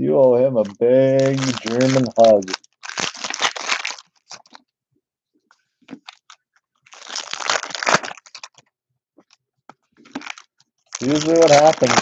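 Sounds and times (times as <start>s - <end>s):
foil wrapper crinkling: 0.6s - 4.6s, 5.9s - 8.6s, 10.0s - 12.0s.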